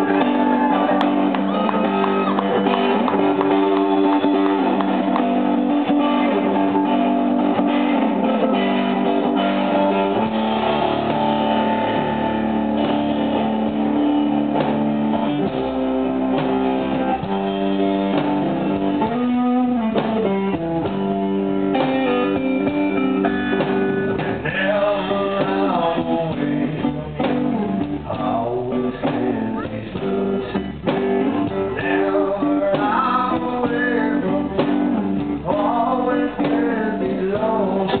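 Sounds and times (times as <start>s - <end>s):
person singing: 0.0s - 10.3s, 23.1s - 30.5s, 31.4s - 38.0s
blues-rock band playing: 0.0s - 38.0s
lead electric guitar: 0.0s - 38.0s.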